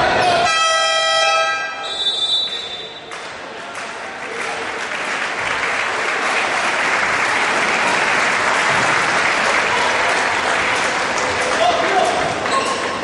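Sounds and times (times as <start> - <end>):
crowd applauding and cheering: 3.0 - 13.0.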